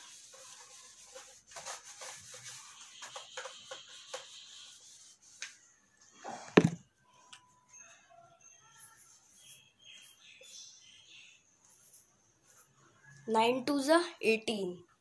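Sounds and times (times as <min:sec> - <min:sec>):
eraser rubbing on whiteboard: 0:00.0 - 0:05.8, 0:11.7 - 0:12.8.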